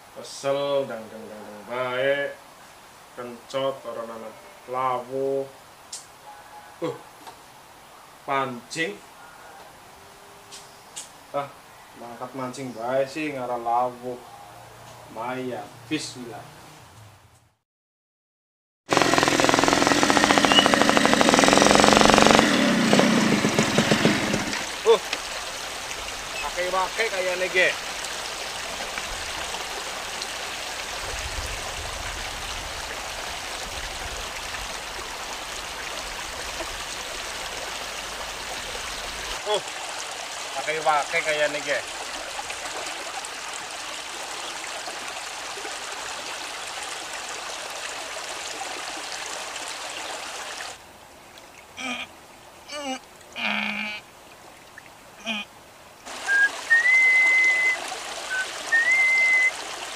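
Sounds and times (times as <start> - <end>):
water rushing and splashing: 18.9 - 53.4, 54.0 - 59.9
shallow stream running: 18.9 - 59.9
man whistling: 20.4 - 20.7, 56.3 - 59.5.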